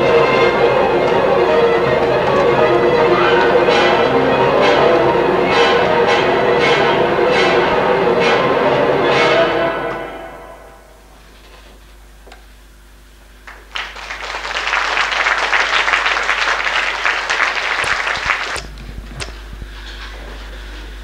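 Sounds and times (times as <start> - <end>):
audience applauding: 0.0 - 9.0, 13.4 - 19.3.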